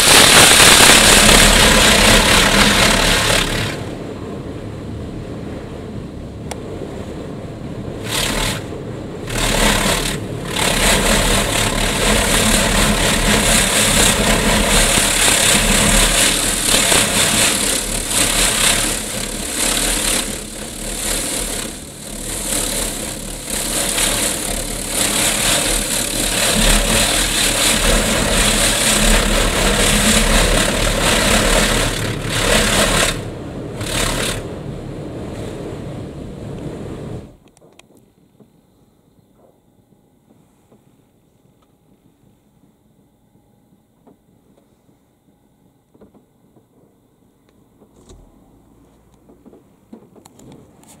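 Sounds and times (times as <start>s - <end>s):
high-pressure water jets hissing: 0.0s - 3.8s, 9.3s - 33.2s
steady low hum: 0.0s - 51.0s.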